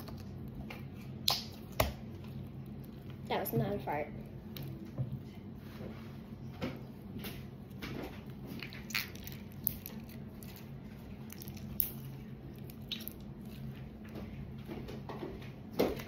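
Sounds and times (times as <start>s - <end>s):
slime squelching by hand: 6.9s - 15.1s.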